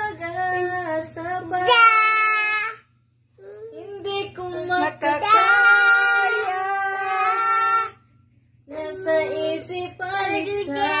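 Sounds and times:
child singing: 1.6s - 2.8s, 3.4s - 8.0s, 8.7s - 11.0s.

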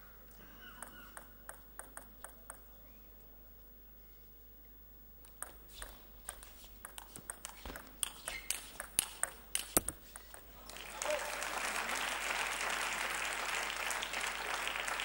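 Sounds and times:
table tennis ball clicking: 0.8s - 2.7s, 5.2s - 10.4s.

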